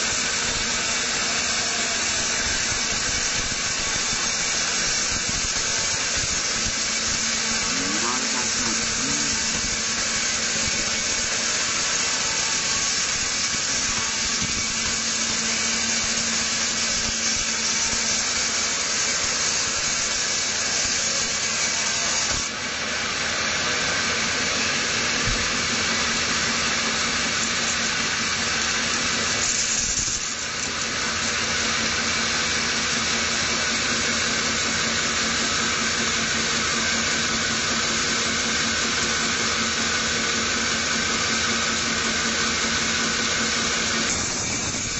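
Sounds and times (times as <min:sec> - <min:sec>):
saw blade rushing through wood: 0:00.0 - 0:44.9
low motor hum: 0:02.5 - 0:17.2.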